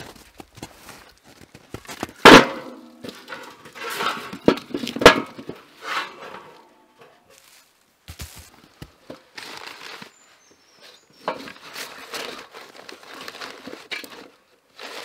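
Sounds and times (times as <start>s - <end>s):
wooden knocks and clunks: 1.6s - 6.4s.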